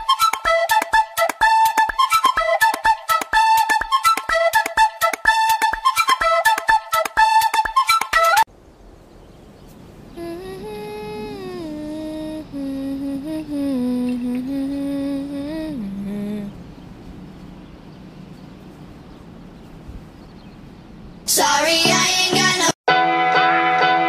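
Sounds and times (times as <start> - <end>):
faint hiss: 8.5 - 20.2
wordless voice holding long notes: 10.2 - 16.6.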